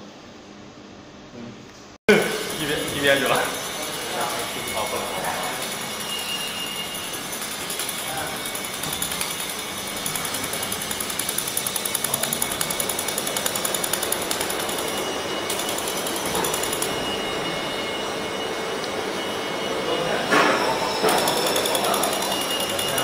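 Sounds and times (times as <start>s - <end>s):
steady machine hum: 2.1s - 23.0s.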